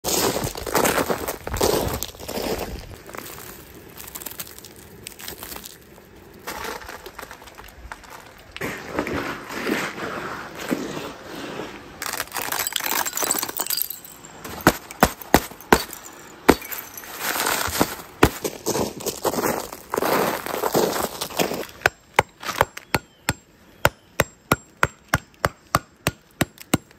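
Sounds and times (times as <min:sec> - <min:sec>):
ice crunching: 0:00.0 - 0:22.7
ice clinking and cracking: 0:03.2 - 0:08.6, 0:12.0 - 0:18.1.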